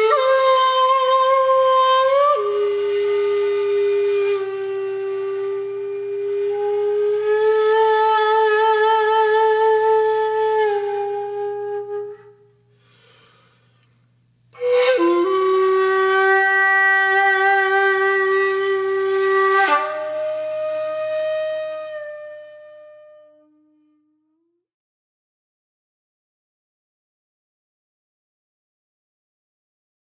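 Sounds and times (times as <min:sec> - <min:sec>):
bamboo flute slow solo: 0:00.0 - 0:13.7, 0:14.5 - 0:24.2.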